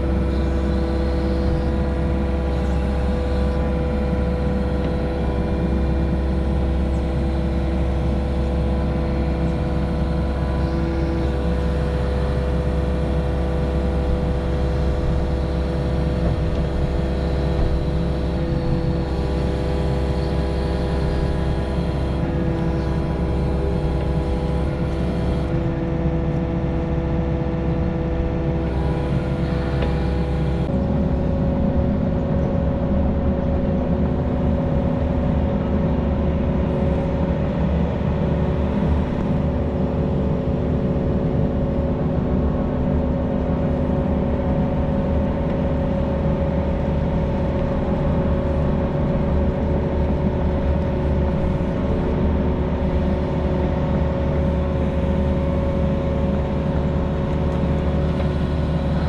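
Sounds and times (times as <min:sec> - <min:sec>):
diesel engine droning: 0:00.0 - 0:59.0.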